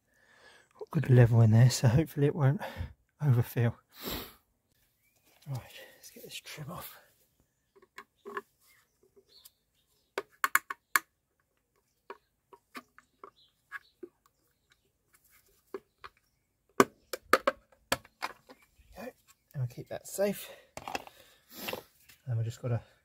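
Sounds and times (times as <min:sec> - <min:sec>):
plastic tool clicking on wheel cap: 0:10.2 - 0:11.1.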